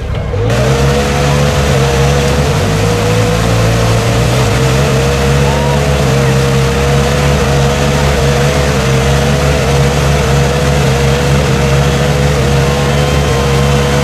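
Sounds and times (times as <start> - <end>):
engine at high revs: 0.0 - 14.0
tyres spinning in mud: 0.4 - 14.0.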